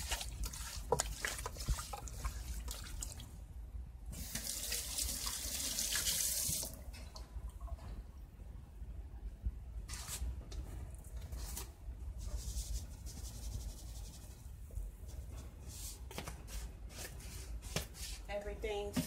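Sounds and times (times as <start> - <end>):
chicken pieces rustling in a pot: 0.0 - 3.2
low steady hum: 0.0 - 19.0.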